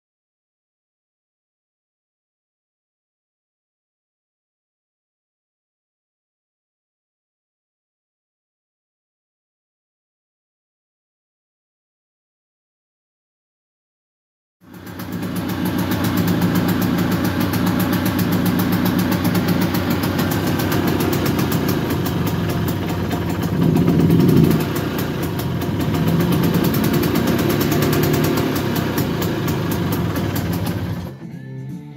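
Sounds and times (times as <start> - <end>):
scooter engine idling and revving: 14.6 - 31.2.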